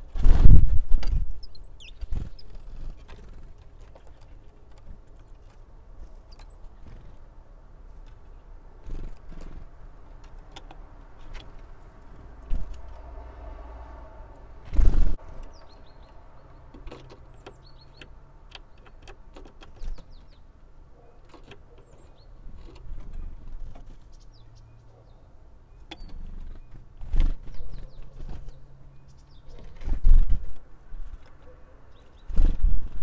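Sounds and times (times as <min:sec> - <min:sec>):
small birds chirping: 0:00.0 - 0:33.0
bird wings flapping: 0:14.7 - 0:15.2, 0:32.3 - 0:33.0.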